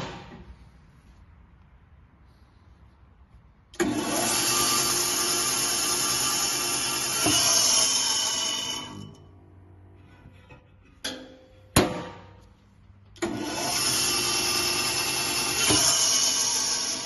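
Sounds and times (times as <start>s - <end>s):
bandsaw motor running: 3.8s - 9.1s, 13.2s - 17.0s.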